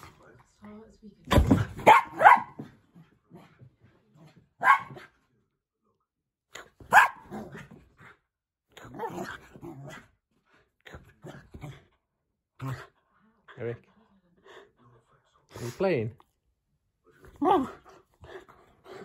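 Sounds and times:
dog barking: 1.8 - 2.7, 4.6 - 5.1, 6.8 - 7.5.

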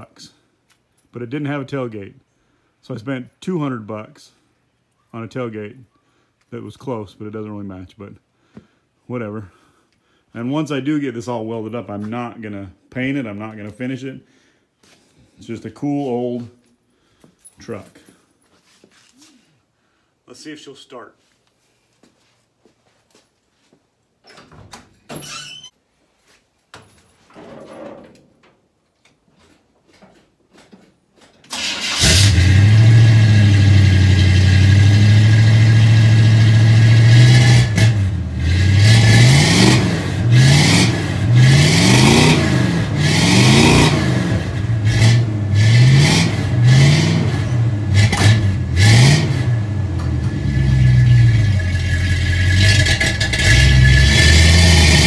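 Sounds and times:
pickup engine starting and revving: 31.5 - 55.0.

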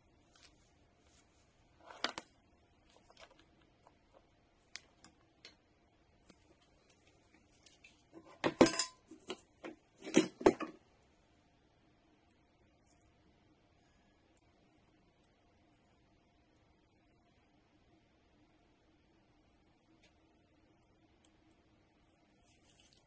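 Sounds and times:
metal tools clattering on workbench: 8.2 - 9.3.

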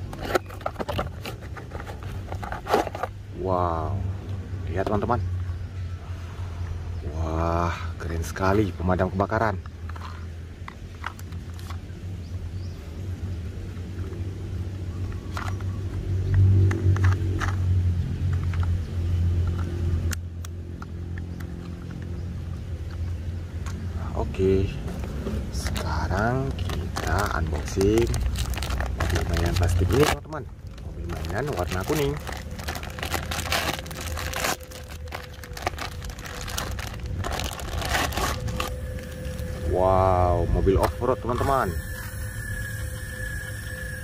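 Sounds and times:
low engine hum: 0.0 - 44.0
plastic bag crinkling: 24.8 - 39.7.

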